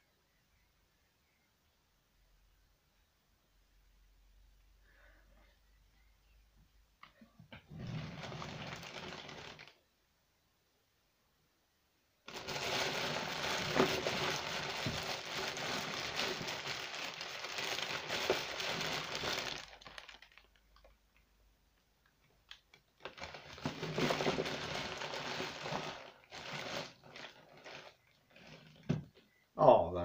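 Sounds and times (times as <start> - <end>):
packaging rustling and crumpling: 7.7 - 9.8, 12.3 - 21.0, 22.5 - 29.0.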